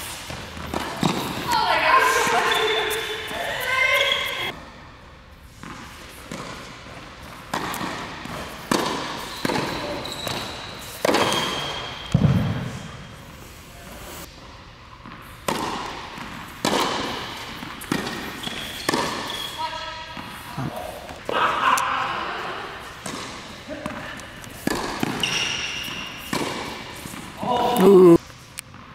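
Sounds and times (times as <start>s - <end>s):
tennis ball bouncing: 0.3s - 1.6s, 5.6s - 12.5s, 15.0s - 19.4s, 23.0s - 27.3s
tennis racket striking ball: 7.5s - 12.5s, 15.0s - 19.4s, 23.0s - 27.3s.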